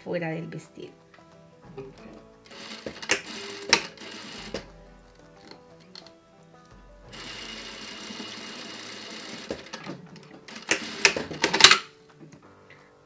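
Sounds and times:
sharp clicks and knocks: 1.7s - 6.1s
sewing machine running: 2.5s - 4.8s, 7.1s - 11.9s.

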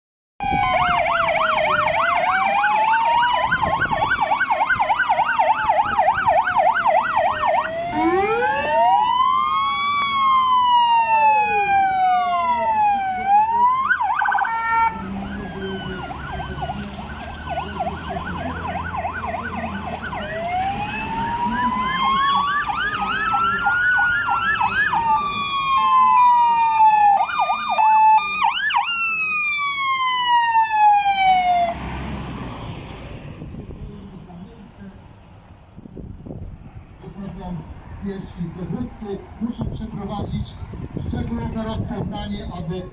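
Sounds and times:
fire engine sirens wailing and yelping: 0.4s - 33.8s
truck engines rumbling: 0.4s - 42.9s.

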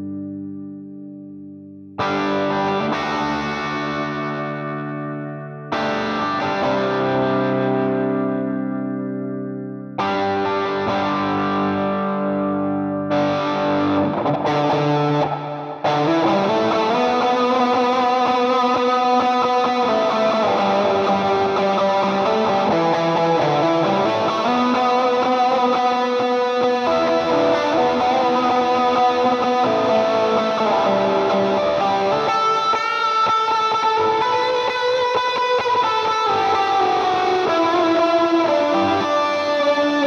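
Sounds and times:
electric guitar lead line: 0.0s - 40.0s.

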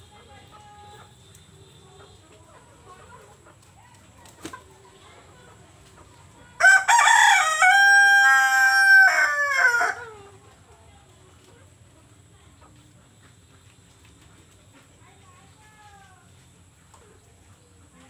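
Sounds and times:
rooster crowing: 6.6s - 10.2s.

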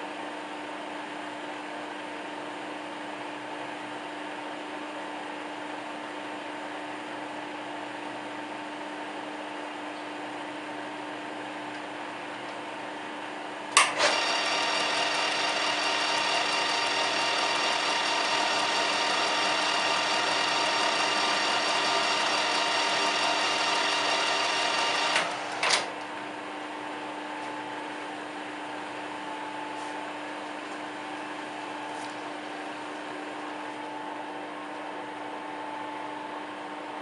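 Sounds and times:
lathe switch click: 13.8s - 14.2s
metal lathe whining: 14.0s - 25.9s.

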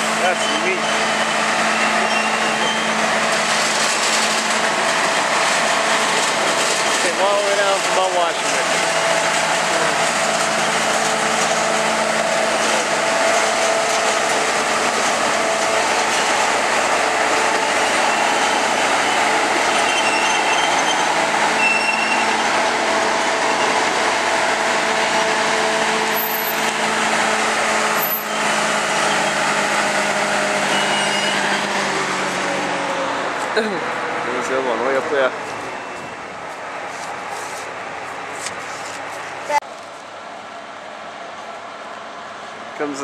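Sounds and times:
diesel locomotive engine droning: 0.0s - 43.0s.

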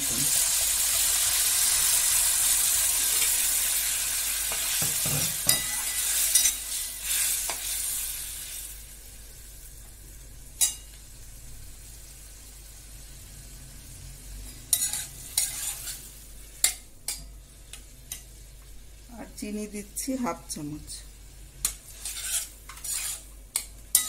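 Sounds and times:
food sizzling in a pan: 0.0s - 24.0s
metal spatula clinking on pan: 4.9s - 6.6s, 10.6s - 10.9s, 14.7s - 15.9s, 21.6s - 24.0s.

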